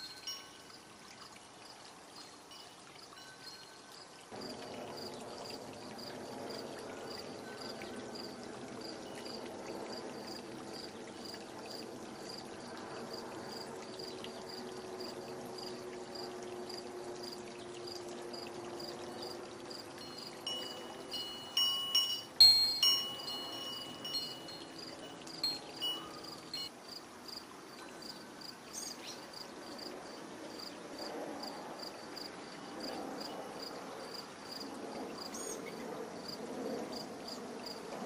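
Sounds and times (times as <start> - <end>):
chime tones ringing: 0.0 - 0.7, 19.9 - 26.7
faint high chirp: 20.0 - 26.7.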